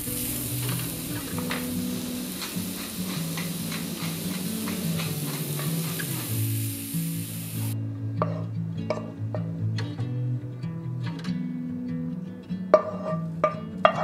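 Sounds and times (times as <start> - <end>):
vegetables sizzling in pan: 0.0 - 7.8
wooden spoon tapping pan: 0.2 - 6.3.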